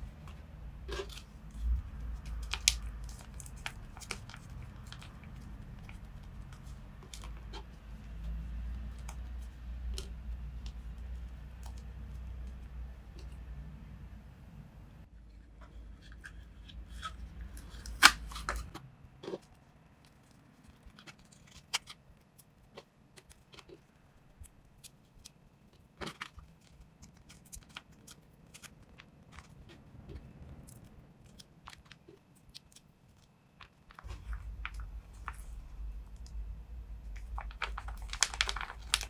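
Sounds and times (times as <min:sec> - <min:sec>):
tape and paper crackling: 0:00.2 - 0:13.6, 0:16.2 - 0:39.0.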